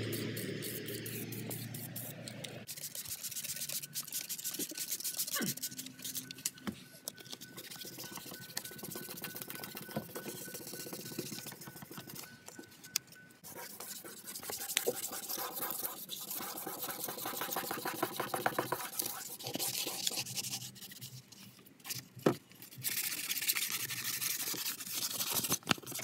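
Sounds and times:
wet sandpaper rubbing on metal: 0:00.0 - 0:06.3.

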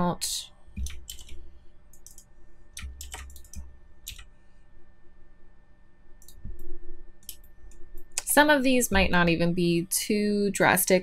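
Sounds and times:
keyboard and mouse clicks: 0:00.8 - 0:04.3, 0:06.2 - 0:08.3.

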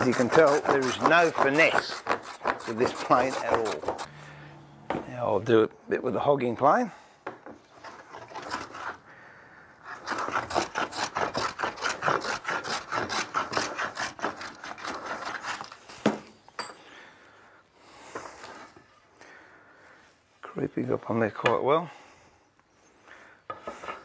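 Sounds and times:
hand plane rasping on wood: 0:00.0 - 0:04.1, 0:07.8 - 0:09.0, 0:09.8 - 0:15.8.

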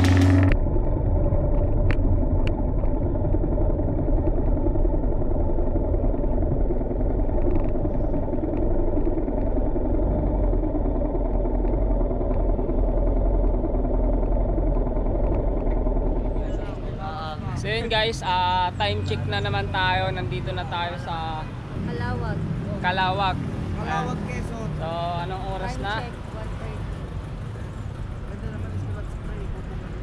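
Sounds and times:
motorcycle engine at low revs: 0:00.0 - 0:20.7.

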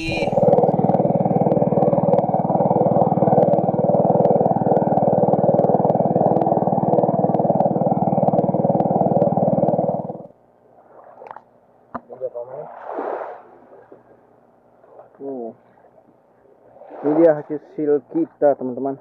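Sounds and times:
boat engine puttering: 0:00.0 - 0:10.4.

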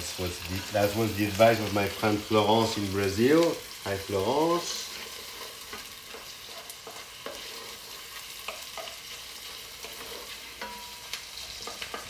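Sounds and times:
meat sizzling in a pot: 0:00.0 - 0:12.0
wooden spoon scraping a pot: 0:04.6 - 0:12.0.

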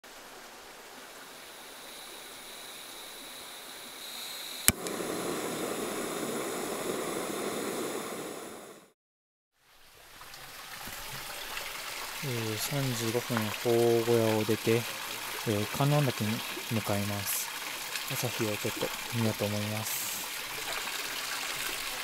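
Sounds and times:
sharp click: 0:04.7 - 0:05.0
steady rushing noise: 0:04.7 - 0:08.9.

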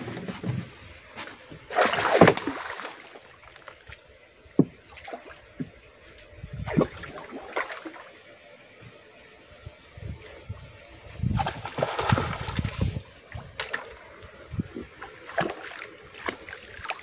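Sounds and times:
water splashing against boat: 0:00.0 - 0:04.0, 0:11.3 - 0:17.0.

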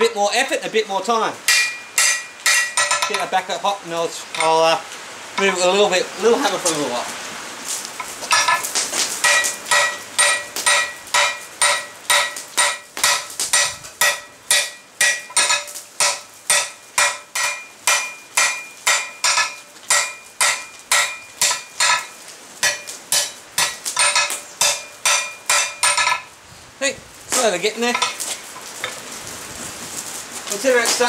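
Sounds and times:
hammer striking steel on anvil: 0:01.5 - 0:03.4, 0:08.3 - 0:26.3.

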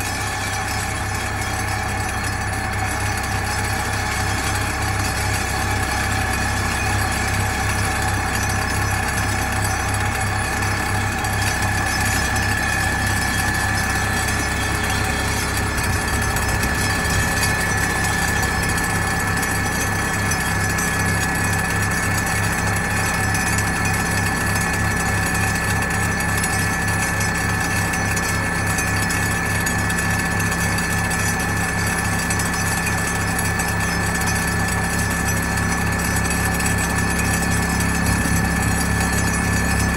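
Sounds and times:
constant high whine: 0:00.0 - 0:39.9
pile hammer pulsing drone: 0:00.0 - 0:39.9
deep hum: 0:05.4 - 0:21.7.

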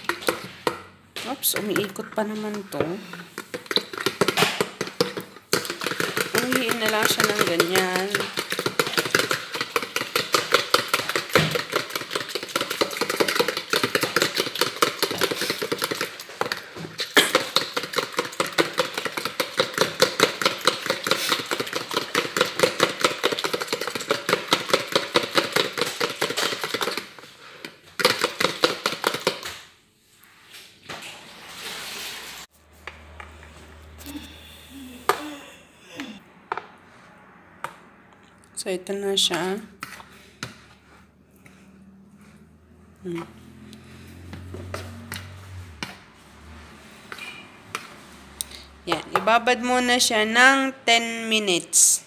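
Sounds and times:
batter beaten in a bowl: 0:00.0 - 0:29.8, 0:39.1 - 0:50.4.

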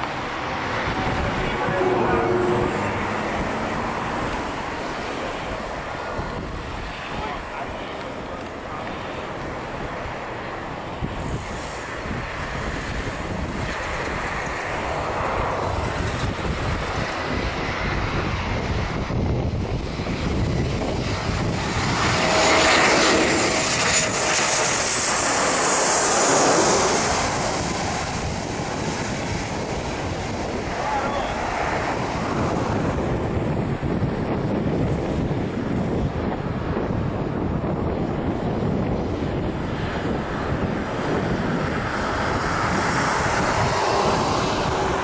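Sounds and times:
faint high engine whine: 0:00.0 - 0:34.2
jet airliner engine roar: 0:00.0 - 0:45.0.

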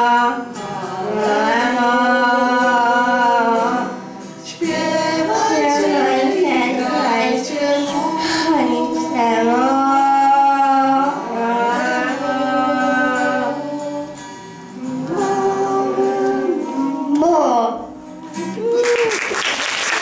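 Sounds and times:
person singing: 0:00.0 - 0:19.4
acoustic guitar: 0:00.0 - 0:20.0.

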